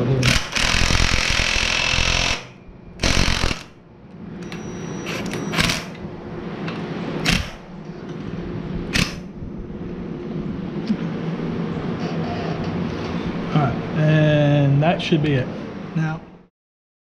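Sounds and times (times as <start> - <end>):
steady low hum: 0.0 - 16.5
impact wrench hammering: 0.2 - 3.8, 7.2 - 7.7.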